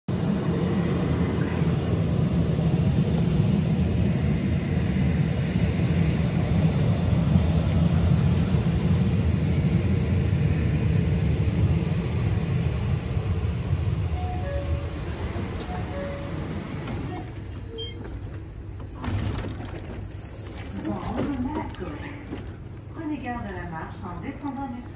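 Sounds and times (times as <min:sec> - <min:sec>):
train wheels rumbling on rails: 0:00.1 - 0:24.9
faint high squeal: 0:10.9 - 0:19.0.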